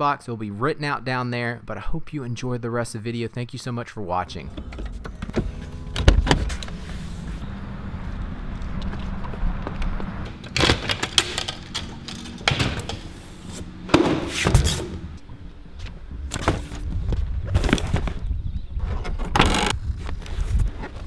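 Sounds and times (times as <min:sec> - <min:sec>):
metal locker door clicks: 0:10.4 - 0:13.1.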